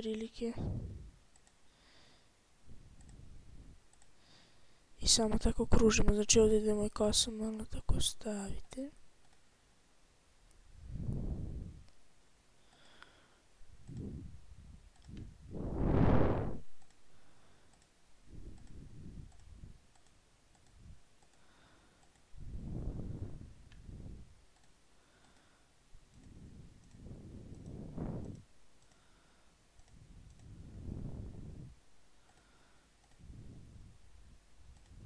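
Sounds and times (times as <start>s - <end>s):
muffled low puffs of noise: 0.5s - 1.2s, 10.7s - 12.0s, 13.6s - 17.6s, 18.2s - 19.9s, 22.3s - 24.4s, 26.0s - 28.6s, 29.9s - 32.2s, 33.2s - 35.0s
computer mouse clicking: 1.3s - 1.6s, 2.8s - 4.2s, 8.6s - 9.5s, 13.8s - 15.4s, 16.7s - 17.0s, 17.6s - 22.4s, 23.6s - 29.2s, 29.8s - 30.8s, 32.2s - 33.4s, 34.6s - 35.0s.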